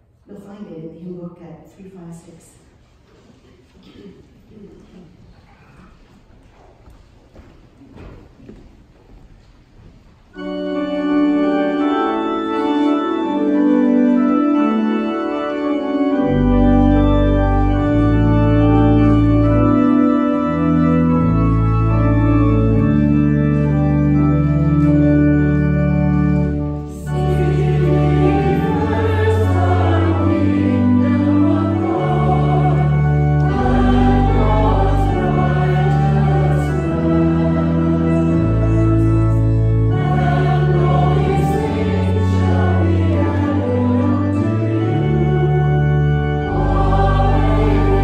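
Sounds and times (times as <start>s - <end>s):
church organ chords: 10.3s - 48.0s
congregation singing a hymn: 10.4s - 48.0s.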